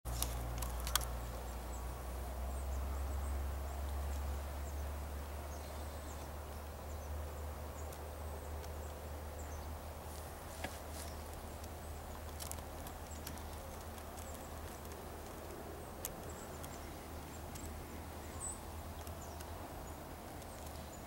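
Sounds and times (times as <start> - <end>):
sharp clicks: 11.3 - 17.8, 18.9 - 21.0.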